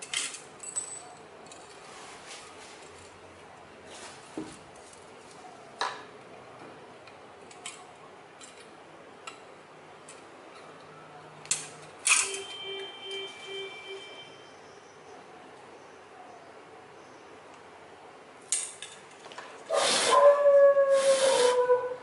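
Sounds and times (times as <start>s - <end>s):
ringing metallic clink: 12.1s - 14.3s.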